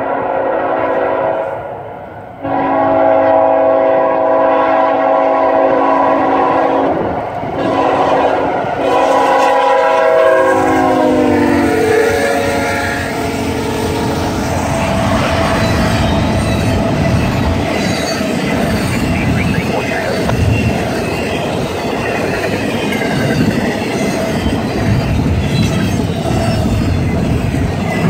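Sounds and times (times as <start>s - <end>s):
locomotive air horn blasts: 0.0s - 1.8s, 2.4s - 14.4s.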